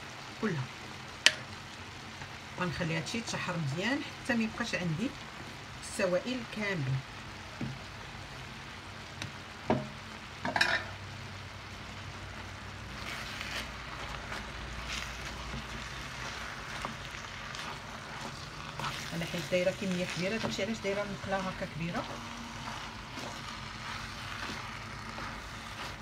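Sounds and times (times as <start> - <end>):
meat sizzling in a frying pan: 0.0 - 26.0
wooden spatula scraping a pan: 12.9 - 26.0.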